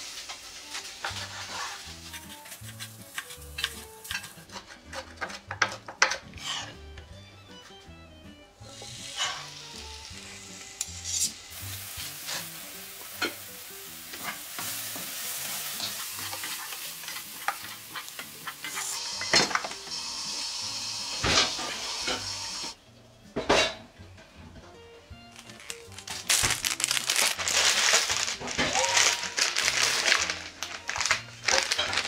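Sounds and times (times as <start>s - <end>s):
food sizzling in a frying pan: 0.0s - 4.4s, 8.6s - 22.8s
wooden spoon scraping and tapping pan: 0.8s - 6.6s, 15.8s - 18.9s.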